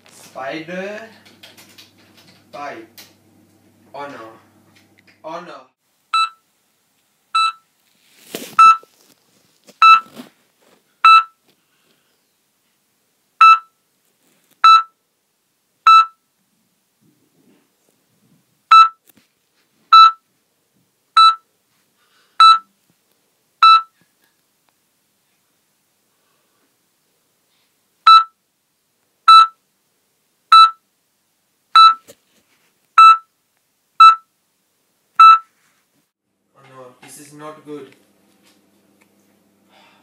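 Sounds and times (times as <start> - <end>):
heart monitor beeping: 6.2 - 6.4, 7.4 - 7.6, 8.6 - 8.9, 9.8 - 10.2, 11.0 - 11.4, 13.4 - 13.8, 14.6 - 15.0, 15.9 - 16.2, 18.7 - 19.0, 19.9 - 20.2, 21.2 - 21.4, 22.4 - 22.7, 23.6 - 24.0, 28.1 - 28.4, 29.3 - 29.6, 30.5 - 30.8, 31.8 - 32.0, 33.0 - 33.3, 34.0 - 34.3, 35.2 - 35.5
brief rustle: 7.8 - 10.9.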